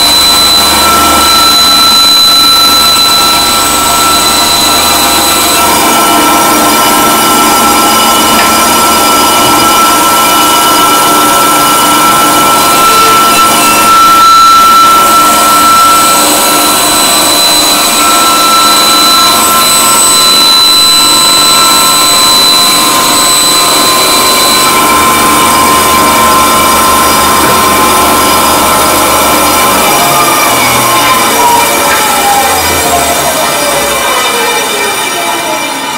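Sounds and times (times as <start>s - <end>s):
band saw whining: 0.0s - 35.9s.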